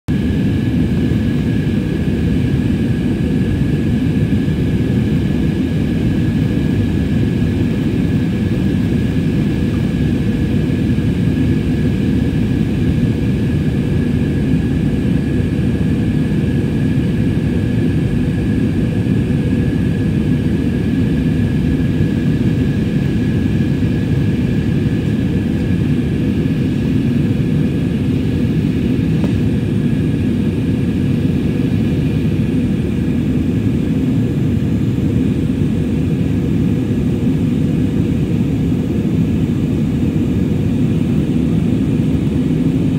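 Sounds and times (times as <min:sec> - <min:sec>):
jet engine and airflow roar: 0:00.1 - 0:42.9.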